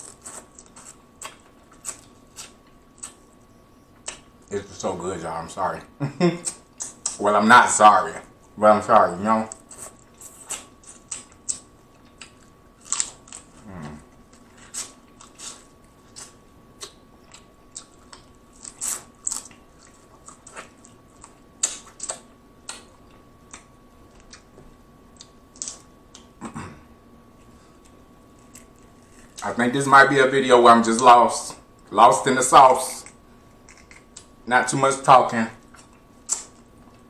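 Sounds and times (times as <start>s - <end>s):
wet eating smacks and chewing: 14.6s - 24.5s.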